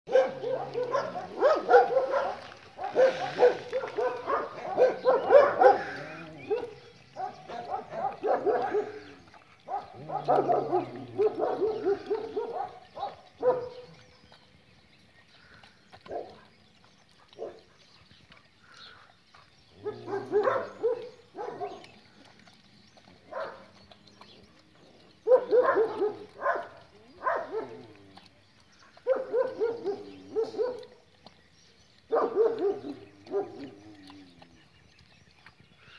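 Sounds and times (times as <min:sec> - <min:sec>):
dog barking: 0:00.1 - 0:09.0, 0:09.7 - 0:13.8, 0:17.4 - 0:17.6, 0:19.8 - 0:21.8, 0:23.3 - 0:23.6, 0:25.2 - 0:27.8, 0:29.0 - 0:30.9, 0:32.1 - 0:33.6.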